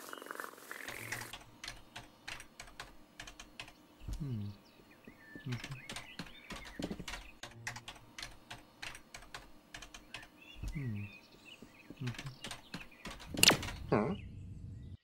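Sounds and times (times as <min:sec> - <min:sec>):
keyboard key clicks: 0:12.0 - 0:13.9.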